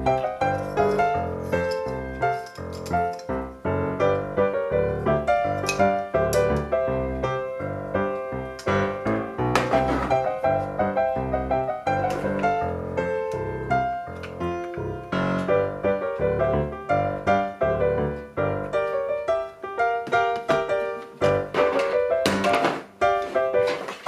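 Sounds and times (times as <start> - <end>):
bouncy piano tune: 0.0 - 24.0.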